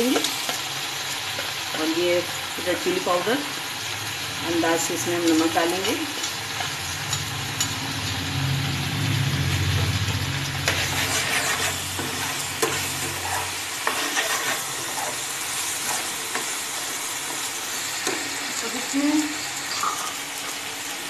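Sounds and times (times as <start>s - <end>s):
vegetables sizzling in a pan: 0.0s - 21.0s
metal spoon scraping a pan: 10.6s - 18.4s, 19.6s - 20.2s.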